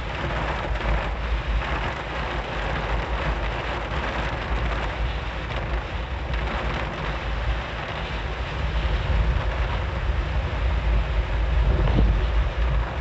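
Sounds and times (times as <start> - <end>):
heavy rain on car windshield: 0.0 - 13.0
road and engine rumble: 0.0 - 13.0.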